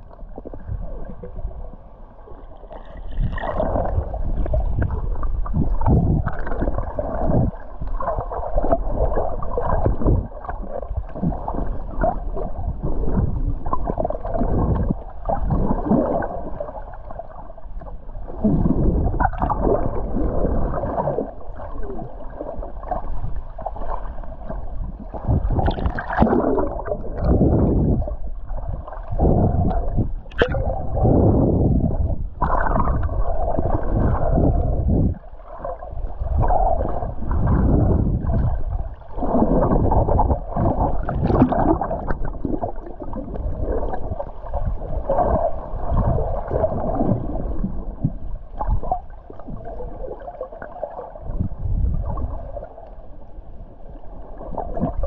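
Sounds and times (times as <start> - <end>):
water surging and splashing: 0.0 - 53.2
wind on microphone: 3.0 - 16.6, 17.9 - 21.3, 24.6 - 50.0, 51.2 - 52.7.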